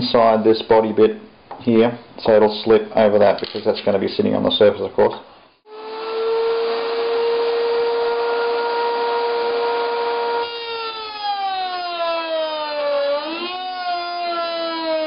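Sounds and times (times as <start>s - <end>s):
router whining: 5.7s - 11.7s.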